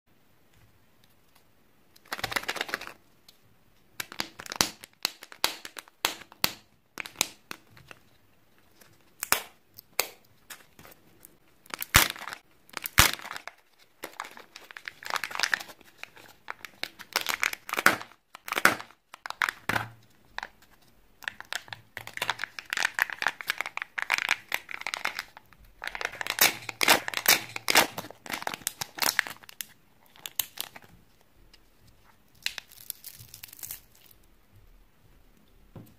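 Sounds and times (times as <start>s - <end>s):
foil crinkling and tearing: 22.1s - 30.9s, 32.4s - 34.2s.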